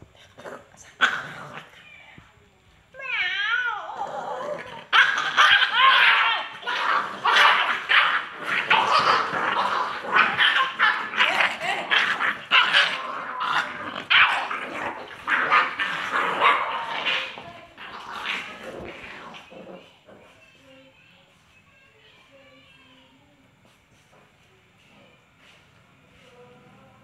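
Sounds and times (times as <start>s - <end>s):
puppies growling: 0.0s - 2.1s, 3.8s - 20.4s.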